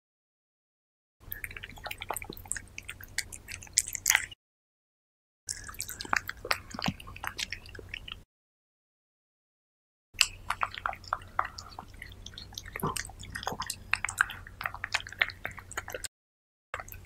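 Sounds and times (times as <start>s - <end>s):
cat eating wet food: 1.2s - 4.4s, 5.5s - 8.2s, 10.2s - 16.1s, 16.8s - 17.0s.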